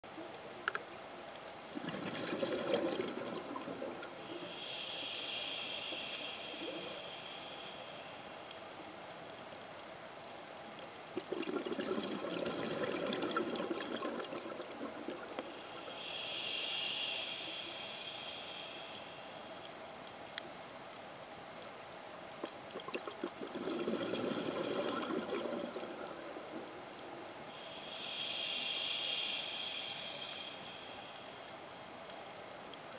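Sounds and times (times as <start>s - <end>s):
scuba regulator breathing underwater: 1.8s - 8.4s, 11.2s - 19.6s, 27.5s - 31.5s.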